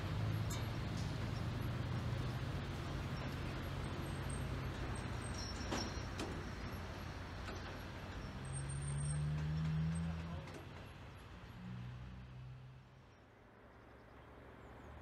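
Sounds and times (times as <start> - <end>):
diesel locomotive engine idling: 0.0 - 11.5.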